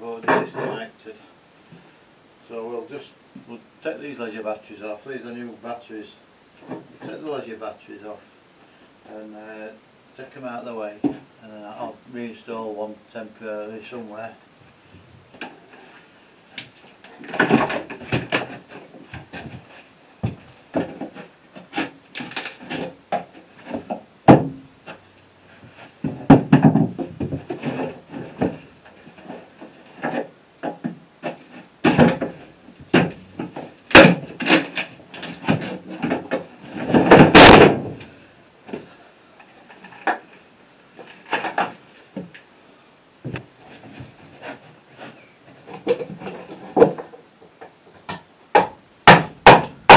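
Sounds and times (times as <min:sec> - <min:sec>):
heavy batteries knocking and scraping: 0:16.6 - 0:38.9
wooden box clattering: 0:17.1 - 0:25.0, 0:25.7 - 0:38.1.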